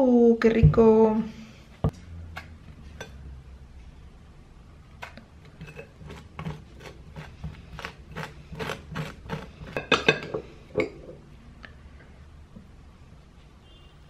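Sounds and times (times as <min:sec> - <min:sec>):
knife and fork mashing avocado: 0:05.0 - 0:10.1.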